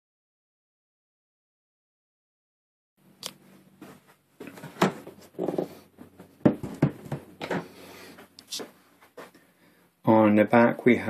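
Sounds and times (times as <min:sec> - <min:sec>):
cardboard box knocking and scraping: 0:06.4 - 0:07.6.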